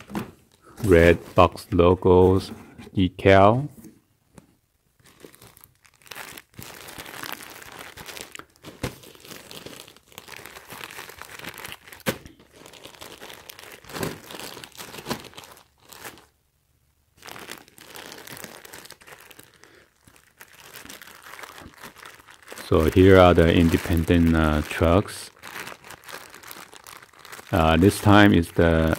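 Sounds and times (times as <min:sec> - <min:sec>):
plastic packaging crinkling: 0:05.0 - 0:16.4, 0:17.1 - 0:28.9.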